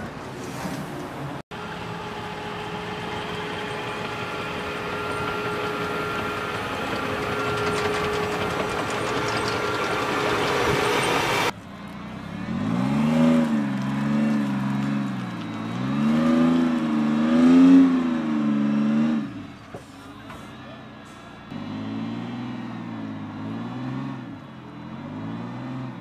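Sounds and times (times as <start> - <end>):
armoured vehicle engine whine: 1.3 - 26.0
vehicle engine revving: 1.6 - 19.6, 21.4 - 26.0.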